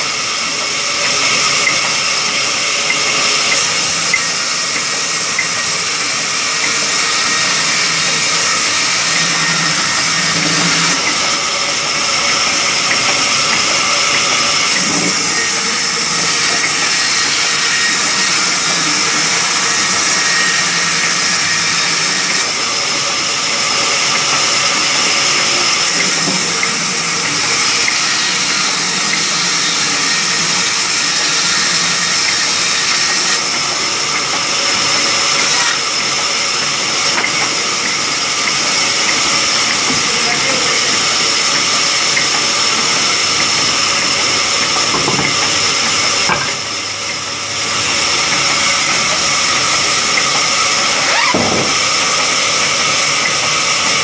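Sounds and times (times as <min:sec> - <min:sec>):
band saw cutting wood: 0:00.0 - 0:54.0
high blade whine: 0:01.6 - 0:34.9.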